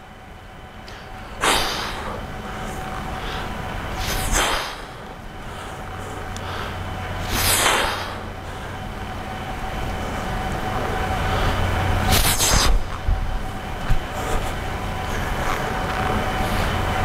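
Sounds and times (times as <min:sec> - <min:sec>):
low mechanical hum: 0:00.0 - 0:17.0
swing whooshing through air: 0:01.4 - 0:05.1, 0:07.2 - 0:08.4, 0:09.8 - 0:17.0.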